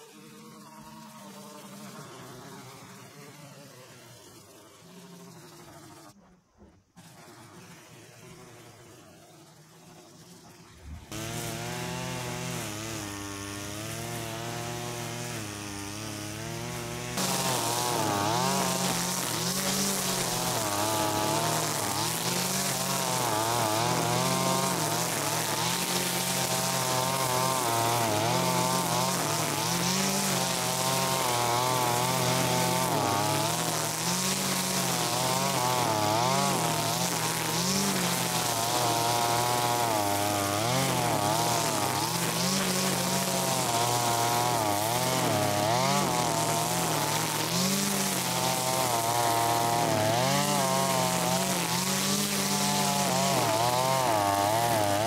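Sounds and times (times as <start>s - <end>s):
brushcutter engine revving: 10.7s - 55.0s.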